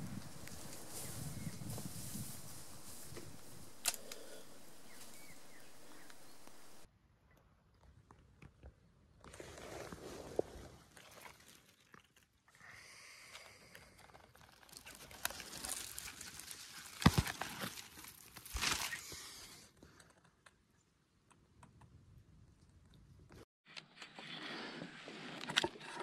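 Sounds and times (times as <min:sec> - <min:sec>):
dry leaves rustling by hand: 0:00.0 - 0:06.9, 0:15.0 - 0:18.9.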